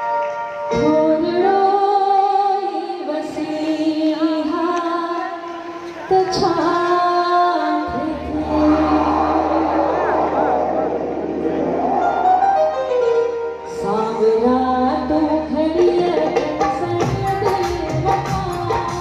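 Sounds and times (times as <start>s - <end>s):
woman singing into a microphone: 0.7s - 10.4s, 13.7s - 19.0s.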